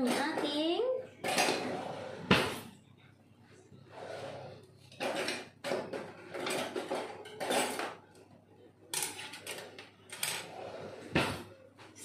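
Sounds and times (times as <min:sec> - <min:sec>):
cutlery clattering: 0:04.9 - 0:08.1, 0:08.9 - 0:10.5.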